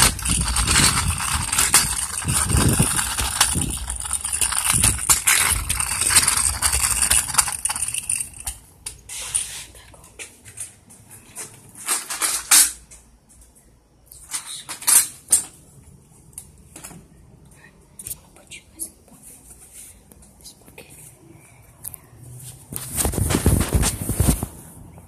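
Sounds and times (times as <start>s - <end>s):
footsteps crunching and rustling: 22.3s - 24.8s.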